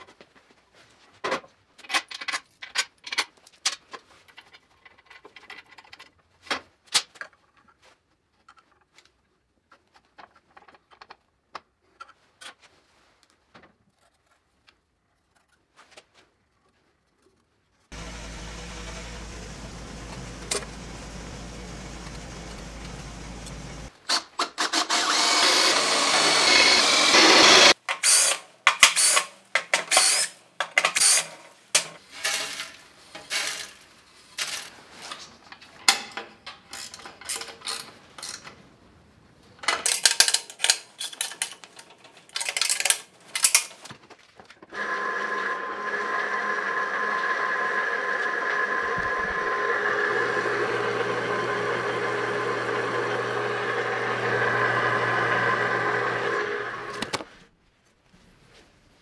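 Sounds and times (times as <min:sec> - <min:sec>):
drill boring into steel: 0:18.0 - 0:23.9, 0:24.8 - 0:28.4, 0:44.8 - 0:57.1
electric motor humming: 0:18.0 - 0:23.9, 0:25.6 - 0:27.7, 0:44.8 - 0:57.1.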